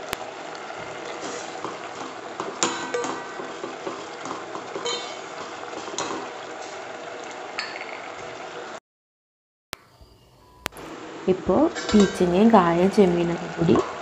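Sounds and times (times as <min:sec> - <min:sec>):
metal ladle stirring in a pot: 0:04.7 - 0:05.2.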